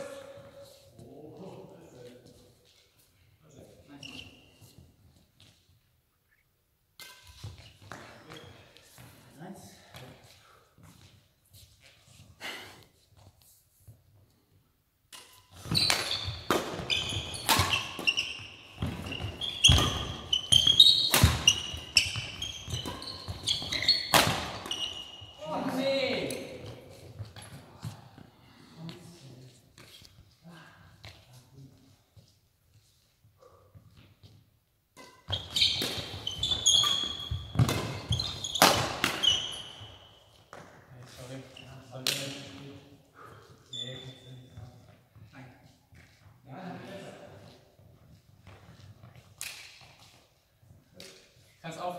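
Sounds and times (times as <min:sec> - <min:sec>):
sneakers squeaking on floor: 0:00.3 - 0:06.4, 0:07.0 - 0:12.3, 0:15.1 - 0:28.2, 0:31.0 - 0:42.6, 0:43.2 - 0:46.3, 0:47.4 - 0:51.6
rackets hitting shuttlecock: 0:07.0 - 0:08.1, 0:15.1 - 0:25.3, 0:35.0 - 0:40.8, 0:48.4 - 0:50.2.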